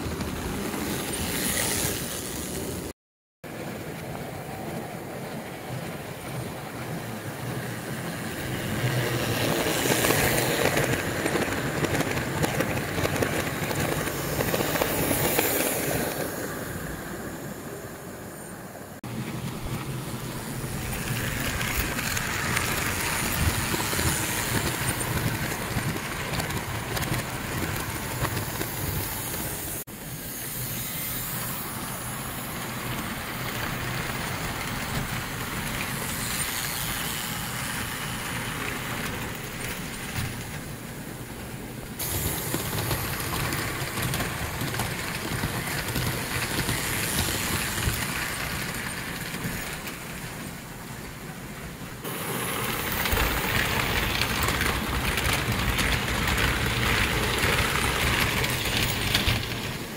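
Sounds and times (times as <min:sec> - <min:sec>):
toy train wheels rumbling and rattling: 0:05.8 - 0:16.5, 0:19.2 - 0:40.8, 0:42.0 - 0:50.6, 0:52.1 - 0:59.9.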